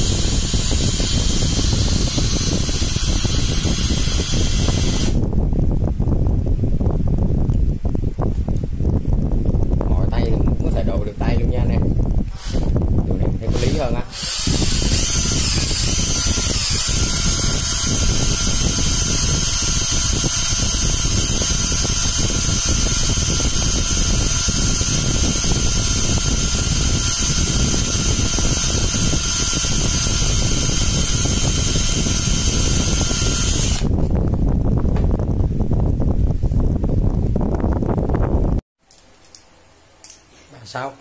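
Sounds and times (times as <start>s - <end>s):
cordless drill motor whining: 0.0s - 5.2s, 12.3s - 12.8s, 13.4s - 34.1s.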